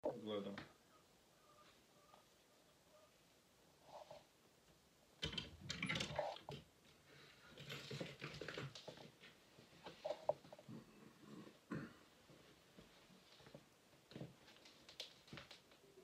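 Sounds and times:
rustling: 5.6s - 10.9s, 11.5s - 16.0s.

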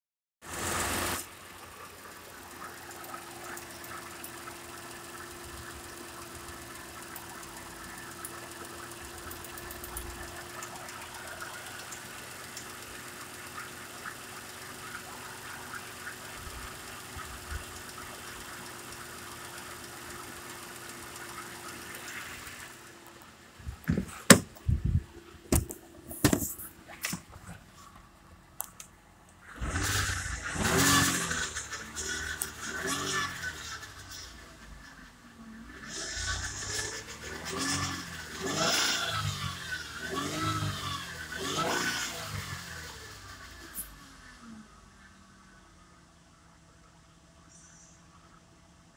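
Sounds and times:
car engine idling: 0.5s - 48.9s
loud sharp thumps: 23.8s - 24.7s.

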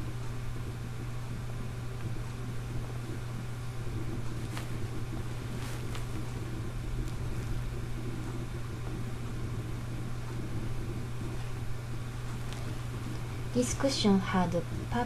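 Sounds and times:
steady low hum: 0.0s - 15.0s
fabric cushions rustling: 4.2s - 7.7s, 11.4s - 13.6s.

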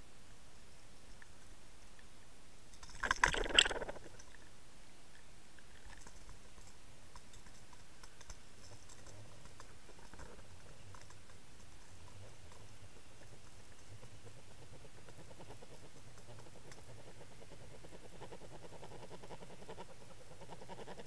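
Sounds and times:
faint underwater hiss: 2.9s - 4.5s
faint ticks: 5.1s - 21.0s.

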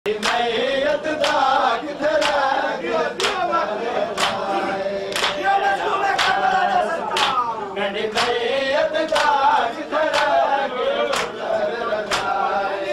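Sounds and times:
men chanting a lament: 0.1s - 12.9s
hands slapping chests: 0.2s - 0.5s, 1.2s - 1.5s, 2.2s - 2.6s, 3.2s - 3.4s, 4.1s - 4.5s, 5.1s - 5.4s, 6.2s - 7.5s, 8.2s - 8.4s, 9.1s - 9.4s, 10.1s - 10.4s, 11.1s - 11.4s, 12.0s - 12.4s.

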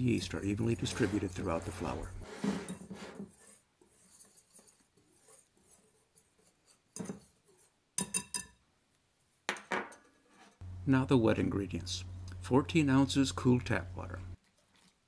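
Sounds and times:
whisk scraping flour: 0.0s - 7.8s
whisk clinking against glass: 8.0s - 8.6s.

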